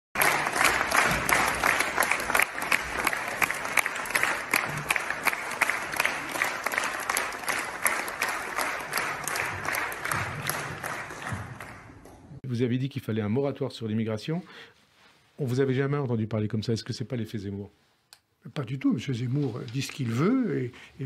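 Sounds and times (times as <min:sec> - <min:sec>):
audience applauding: 0:00.1 - 0:12.1.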